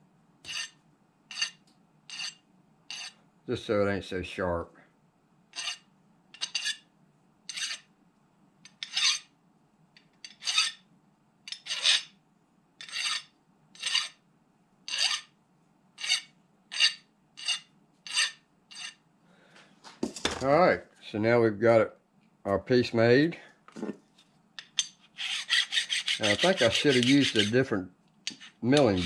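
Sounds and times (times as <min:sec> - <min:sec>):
hand file rasping on metal: 0:00.5 - 0:03.2, 0:05.6 - 0:05.8, 0:07.5 - 0:07.8, 0:12.8 - 0:14.2, 0:14.9 - 0:15.3, 0:16.0 - 0:19.0, 0:25.1 - 0:27.6, 0:28.3 - 0:29.0.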